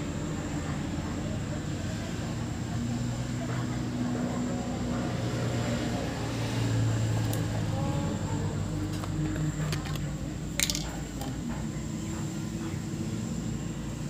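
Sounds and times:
oil filter handling noises: 8.8 - 11.6.

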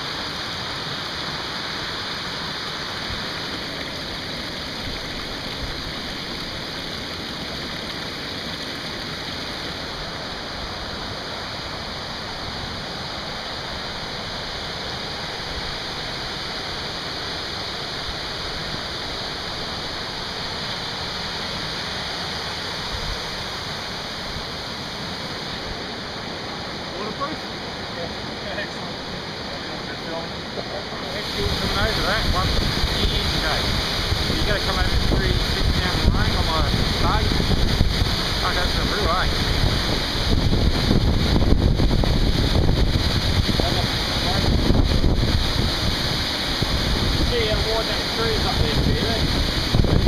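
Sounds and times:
water rushing down a footpath: 0.0 - 50.0.

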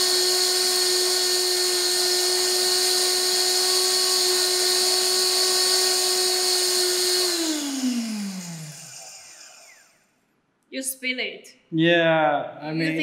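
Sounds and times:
electric grinder whining: 0.0 - 10.0.

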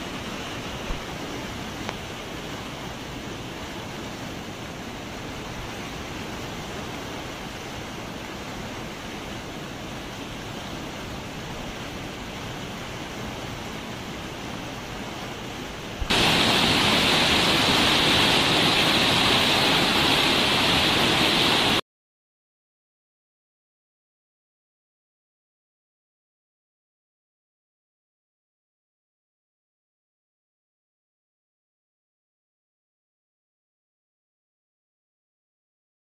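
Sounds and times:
floodwater rushing: 0.0 - 21.8.

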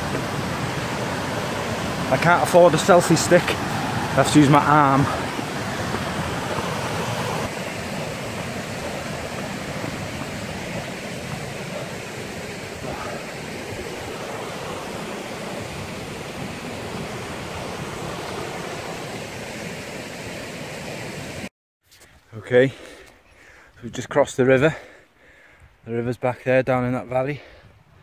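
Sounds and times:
stream rushing over rocks: 0.0 - 21.5.

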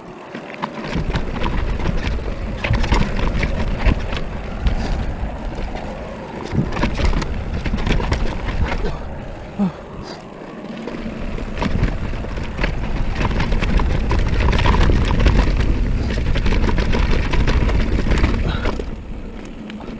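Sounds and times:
bike clattering over bumps: 0.0 - 19.9
bike tyres rolling over dirt: 0.0 - 19.9
wind buffeting microphone: 0.0 - 19.9.

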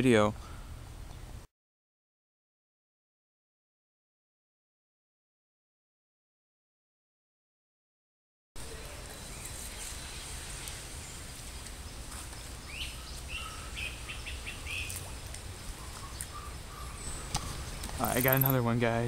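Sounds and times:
bird calling and chirping: 12.1 - 18.7.

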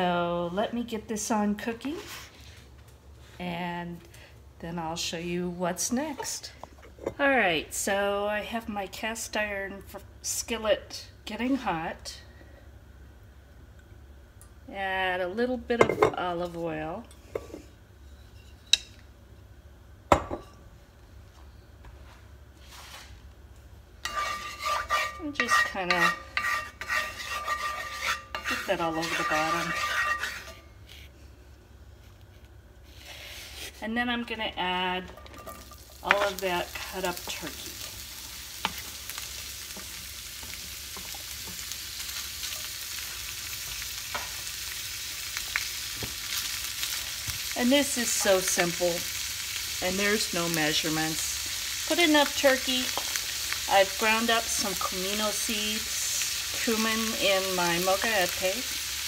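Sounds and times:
wooden spatula scraping: 22.6 - 23.2, 24.0 - 31.2, 32.3 - 34.0
meat sizzling in oil: 35.4 - 59.0.

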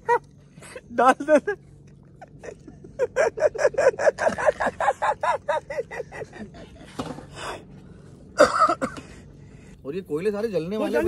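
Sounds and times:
man laughing: 0.0 - 1.6, 2.2 - 7.0.

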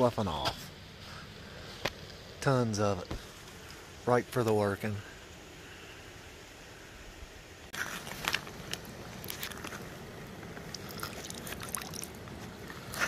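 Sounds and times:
creek water sloshing around stones: 7.7 - 13.0
small splashes: 10.6 - 13.0.

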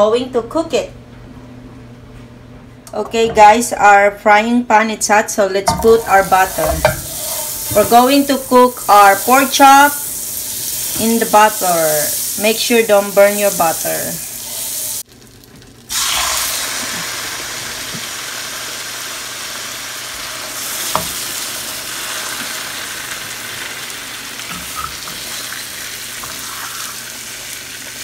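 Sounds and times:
meat sizzling in a pan: 5.7 - 28.0.

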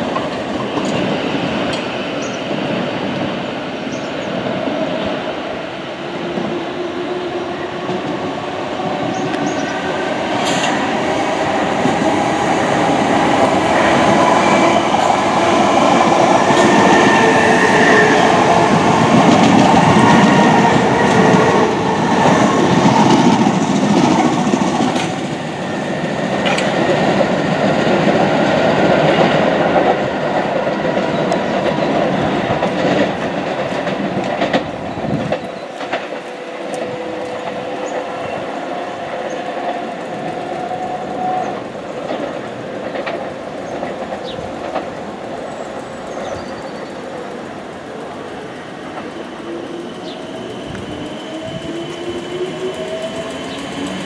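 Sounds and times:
train running past: 0.0 - 54.0.

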